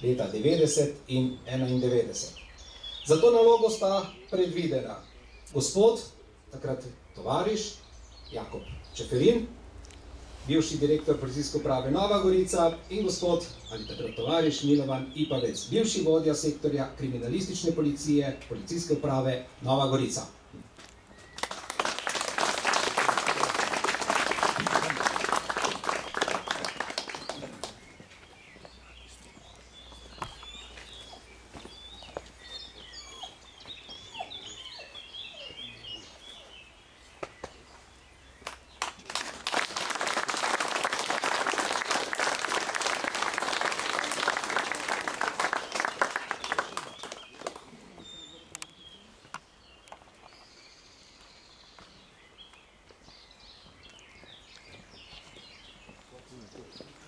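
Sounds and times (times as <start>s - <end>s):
songbirds chirping: 0.0s - 57.0s
crowd applauding: 21.4s - 27.9s, 38.4s - 47.9s.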